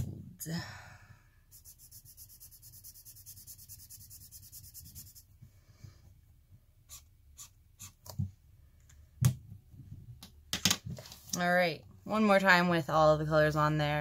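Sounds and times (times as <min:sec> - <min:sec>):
marker scribbling on paper: 0:01.5 - 0:05.3.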